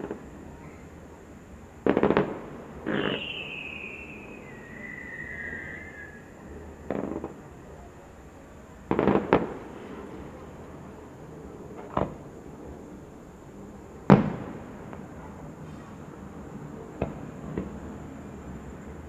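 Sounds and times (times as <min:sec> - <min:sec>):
firework shells bursting: 0:01.8 - 0:06.1.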